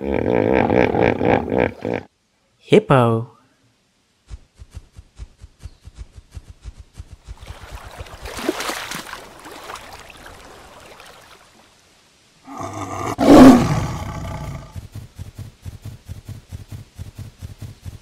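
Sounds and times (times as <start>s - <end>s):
lion roaring: 12.4s - 14.8s.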